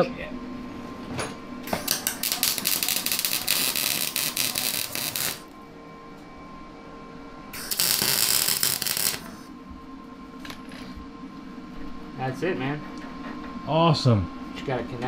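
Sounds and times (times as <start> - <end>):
welding arc crackling: 1.7 - 5.6, 7.6 - 9.5.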